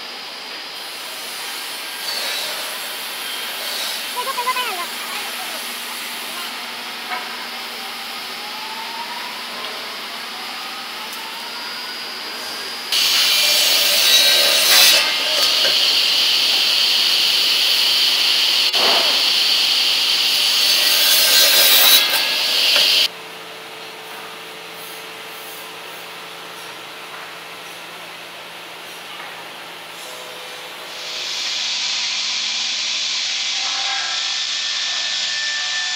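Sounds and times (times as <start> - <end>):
sawmill machinery noise: 0.0 - 35.9
circular saw cutting wood: 0.8 - 23.1, 30.9 - 35.9.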